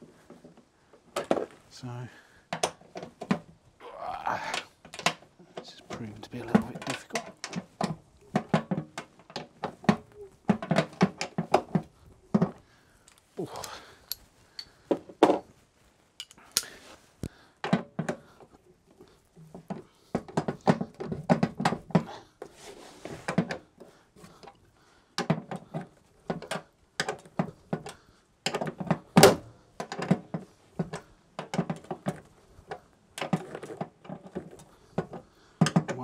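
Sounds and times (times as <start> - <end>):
hand tools clicking on bolts: 12.4 - 14.8, 16.2 - 16.8.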